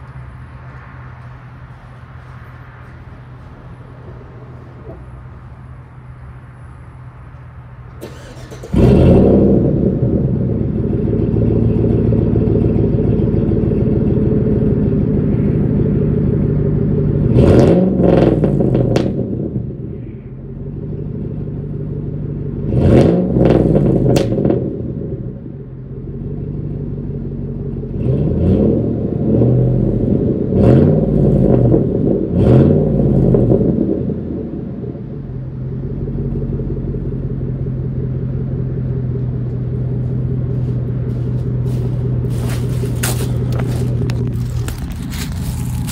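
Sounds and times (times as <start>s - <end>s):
engine starting and revving: 8.0s - 10.8s.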